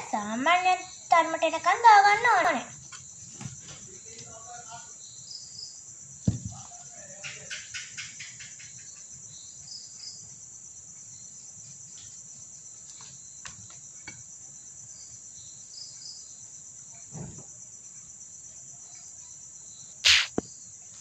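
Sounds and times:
soft knock: 6.3 - 6.6
high-pitched insect chirring: 19.2 - 20.6.

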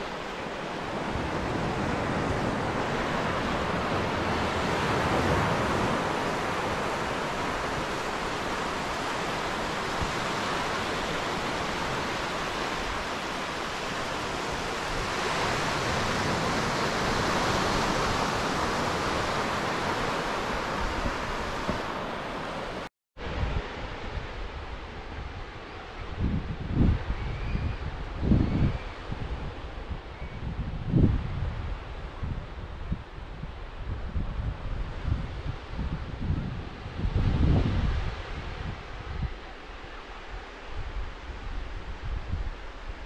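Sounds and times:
small waves washing up a beach: 0.0 - 26.0.

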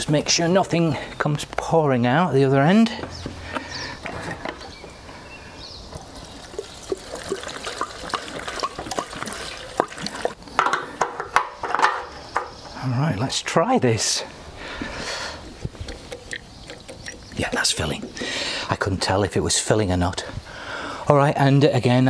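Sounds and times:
fuel trickling into a tank: 5.9 - 11.0, 15.8 - 18.7
clicks and knocks handling can: 6.6 - 12.5.

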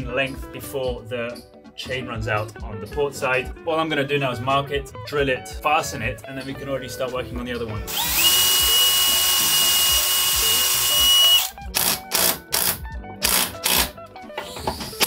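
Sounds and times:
cordless drill running: 7.9 - 13.9.

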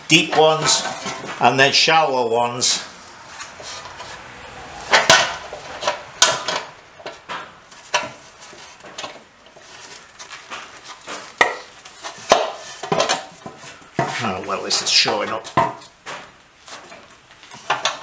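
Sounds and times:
sheet metal clattering: 0.0 - 2.0, 2.6 - 16.3
sharp metallic knocks: 4.8 - 8.2.

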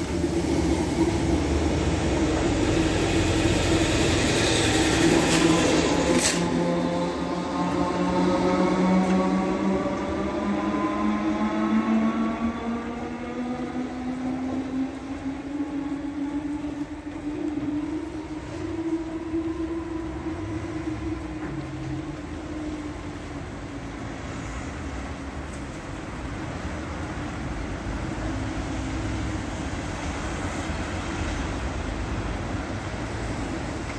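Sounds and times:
electric train accelerating: 0.0 - 25.6
road vehicles passing: 0.0 - 33.9.

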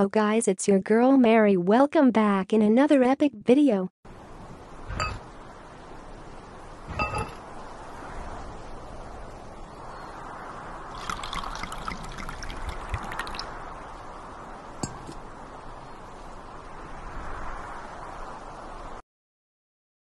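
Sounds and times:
wine glass clinking: 7.0 - 7.4
wine pouring: 10.9 - 13.9.

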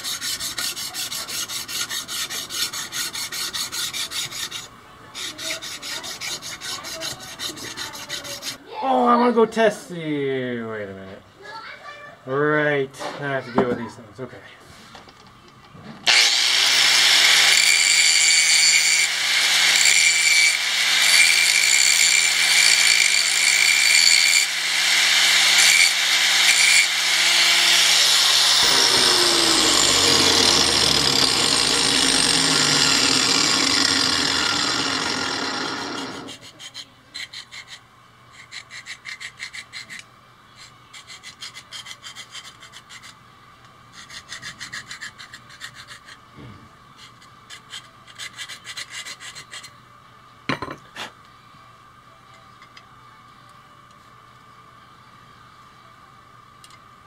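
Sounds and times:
hand file rubbing on steel: 0.0 - 8.6, 25.1 - 40.0, 40.6 - 43.2, 43.9 - 46.2, 47.0 - 49.8
power tool grinding steel: 0.0 - 8.6, 16.1 - 36.7.

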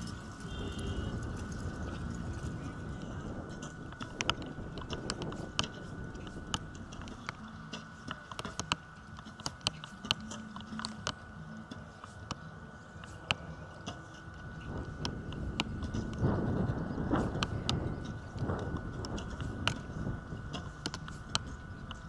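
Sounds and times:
faint high tone: 0.4 - 1.3.

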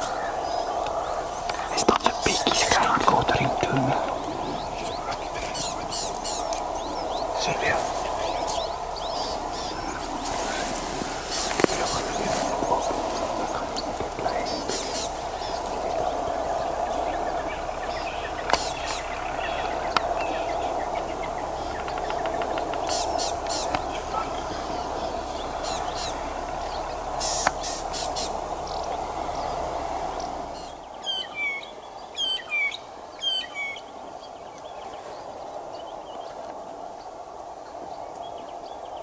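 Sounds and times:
steady background drone: 0.0 - 30.9
birds chirping and calling: 0.0 - 36.4.

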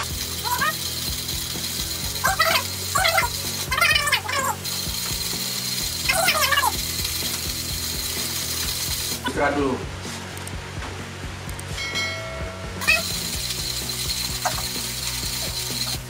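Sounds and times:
hand coffee grinder crackling: 0.0 - 9.3, 12.8 - 16.0.

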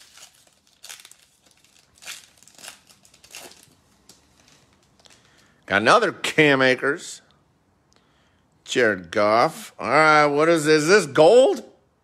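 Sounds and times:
foil wrapper crinkling and tearing: 0.0 - 5.4.

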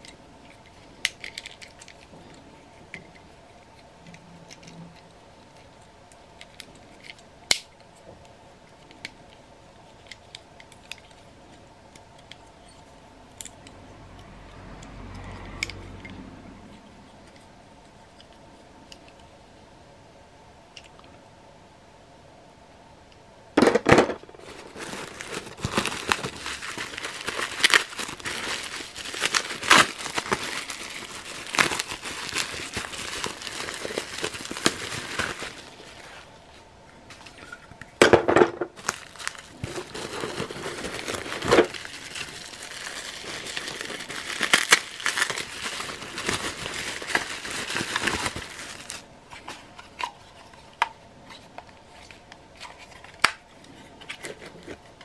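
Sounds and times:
plastic toy parts knocking: 23.6 - 24.2
plastic wrapping crinkling: 24.4 - 36.3, 38.8 - 50.5
newspaper packing rustling: 24.4 - 36.4, 38.8 - 49.8.

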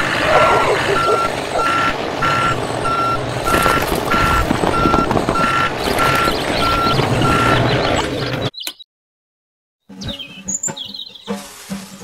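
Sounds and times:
low engine rumble: 0.0 - 8.4
reversing alarm beeping: 0.2 - 7.7.

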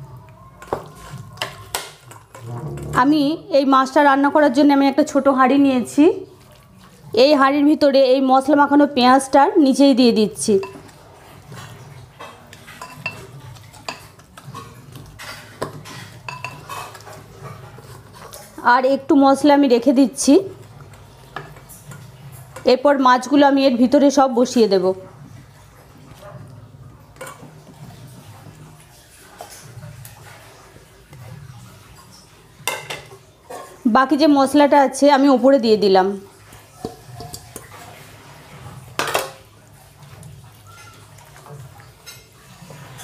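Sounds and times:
metal bowl clinking: 10.4 - 11.0, 12.2 - 17.2.

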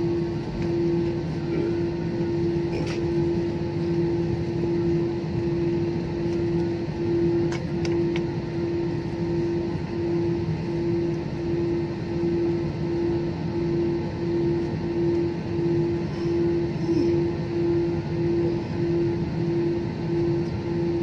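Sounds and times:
jet engine hum in cabin: 0.0 - 21.0.

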